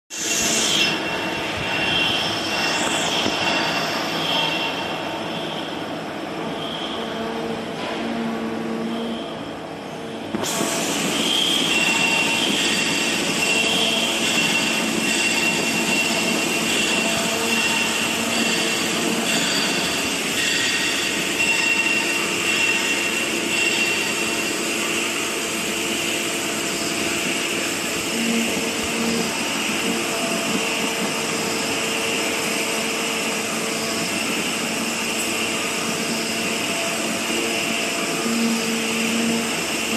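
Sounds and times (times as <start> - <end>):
milling machine cutting metal: 10.4 - 24.5.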